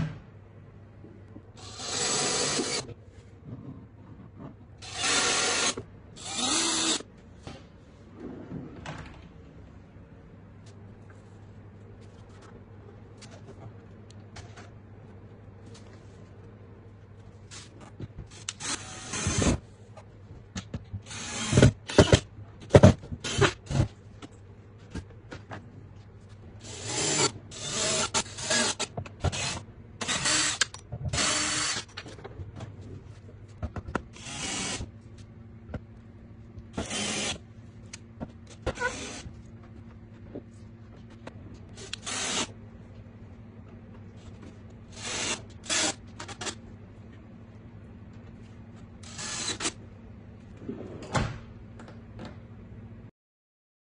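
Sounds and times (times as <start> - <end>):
cordless drill running: 1.6 - 2.8, 4.8 - 7.0, 31.2 - 31.8, 34.2 - 34.8, 41.8 - 42.5, 49.0 - 49.7.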